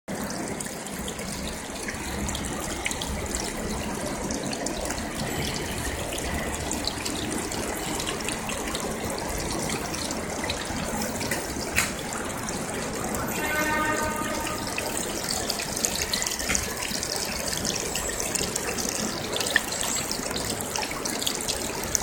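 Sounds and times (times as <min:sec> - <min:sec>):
fountain water splashing: 0:00.1 - 0:22.0.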